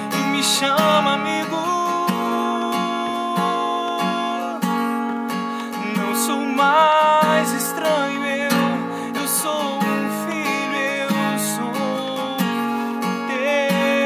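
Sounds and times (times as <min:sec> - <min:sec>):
man singing: 0:00.0 - 0:05.0, 0:05.6 - 0:14.0
acoustic guitar strumming: 0:00.0 - 0:14.0.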